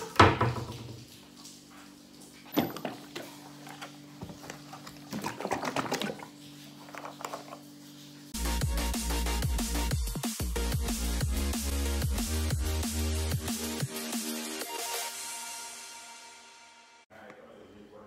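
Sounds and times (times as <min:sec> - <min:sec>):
drink glugging into a glass: 0:02.5 - 0:07.6
music: 0:08.4 - 0:17.3.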